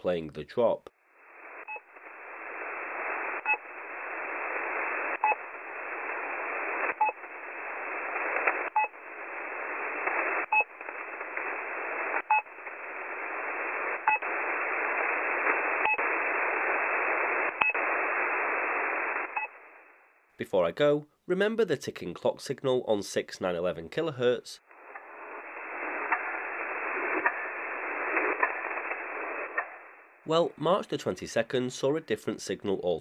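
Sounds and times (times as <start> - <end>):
radio static hiss: 0.0 - 33.0
short drop-like radio blips: 1.2 - 20.0.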